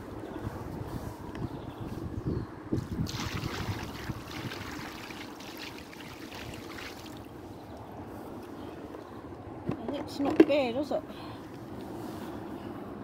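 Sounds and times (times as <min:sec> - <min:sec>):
water splashing onto concrete: 0:02.8 - 0:07.3.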